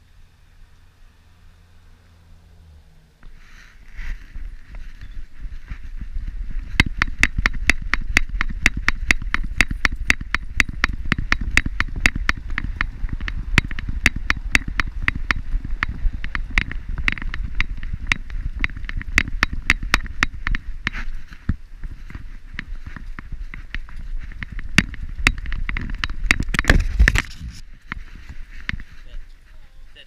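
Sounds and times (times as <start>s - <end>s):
low rumble of movement: 0.0s - 30.0s
sharp regular clicking: 6.7s - 26.8s.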